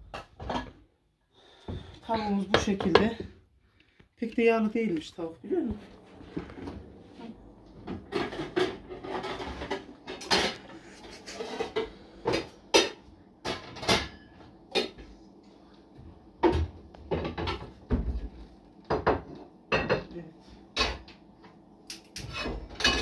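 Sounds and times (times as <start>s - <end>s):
pots and pans clattering: 0.0s - 0.8s, 7.8s - 15.0s, 16.4s - 18.2s, 18.9s - 20.1s, 22.2s - 23.0s.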